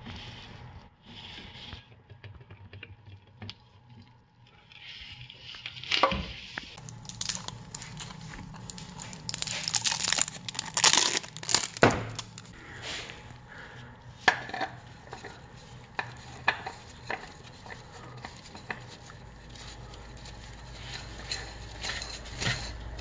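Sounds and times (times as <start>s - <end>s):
plastic wrapping crinkling and tearing: 6.8s - 12.6s.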